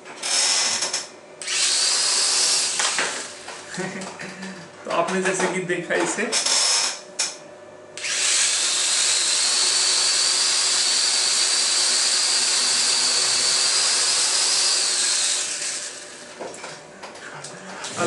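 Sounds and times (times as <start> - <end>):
toy drone propellers whining: 0.2 - 3.3, 8.0 - 16.0.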